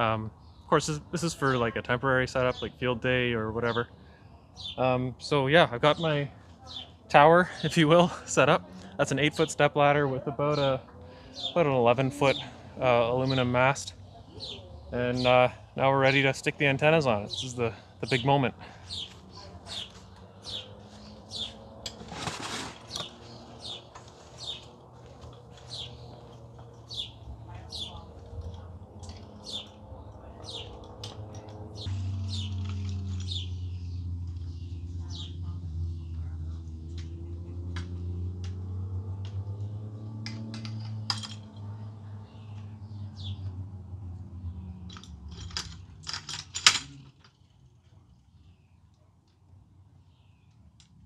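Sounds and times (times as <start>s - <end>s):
songbird chirping: 0.0s - 46.0s
rustling: 21.9s - 24.4s
metal hardware clinking and knocking: 40.3s - 41.6s, 44.9s - 47.4s.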